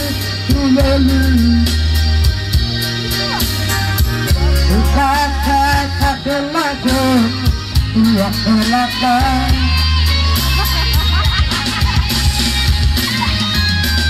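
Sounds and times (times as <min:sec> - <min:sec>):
man singing into a microphone: 0:00.0 - 0:02.2, 0:04.3 - 0:10.3
backing music with heavy bass: 0:00.0 - 0:14.0.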